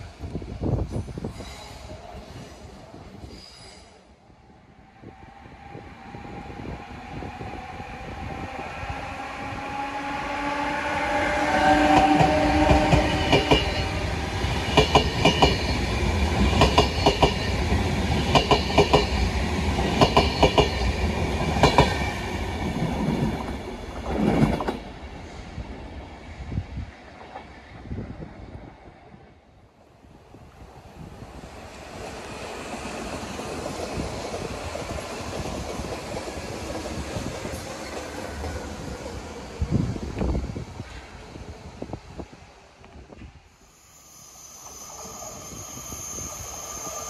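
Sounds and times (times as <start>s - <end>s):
electric locomotive whine: 0.0s - 47.0s.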